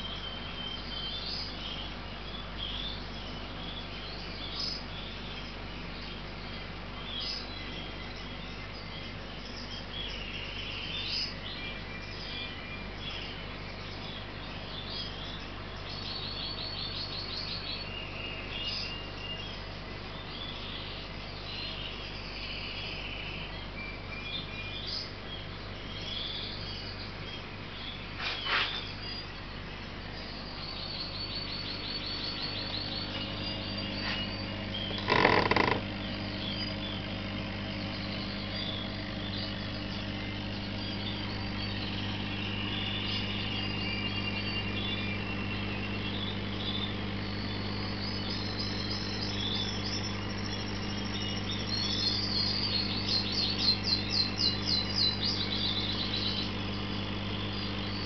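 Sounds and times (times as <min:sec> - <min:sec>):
low hum of aquarium equipment: 0:00.0 - 0:58.0
small birds chirping: 0:00.0 - 0:58.0
buzzy bird trills: 0:30.1 - 0:58.0.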